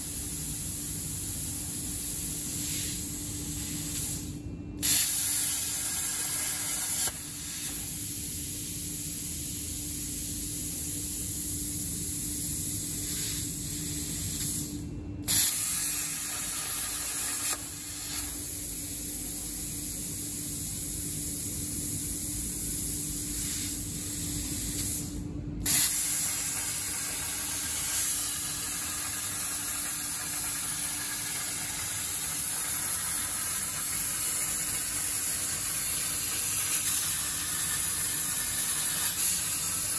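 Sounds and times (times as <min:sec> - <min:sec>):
plasma torch cutting steel: 0:02.0 - 0:08.4, 0:14.1 - 0:14.7, 0:15.3 - 0:19.6, 0:22.8 - 0:39.9.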